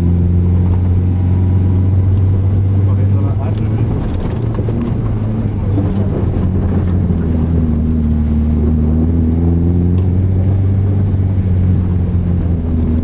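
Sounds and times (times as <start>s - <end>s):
car engine droning: 0.0s - 13.0s
road noise: 0.0s - 13.0s.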